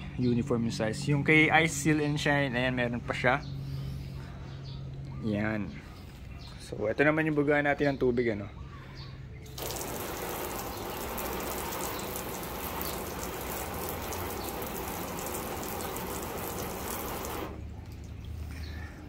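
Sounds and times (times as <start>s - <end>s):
hose spraying water onto car: 9.6s - 17.7s.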